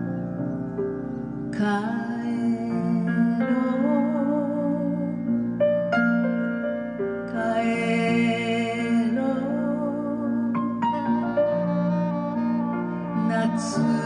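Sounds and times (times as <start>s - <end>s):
grand piano chords: 0.0s - 14.0s
woman singing: 1.5s - 5.4s, 7.2s - 11.8s, 13.1s - 14.0s.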